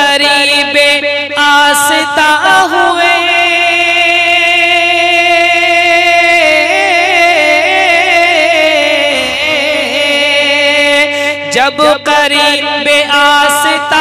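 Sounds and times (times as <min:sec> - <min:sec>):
man singing: 0:00.0 - 0:14.0.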